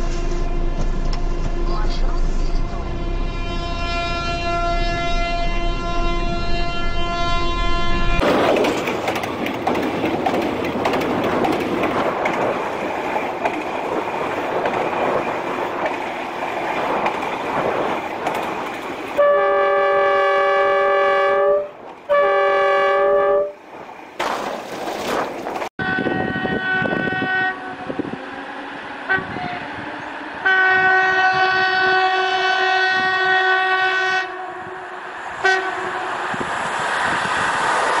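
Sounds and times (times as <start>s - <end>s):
locomotive horn: 0.0s - 8.2s, 19.2s - 23.6s, 25.8s - 28.3s, 29.0s - 36.2s
train rumbling along rails: 0.0s - 38.0s.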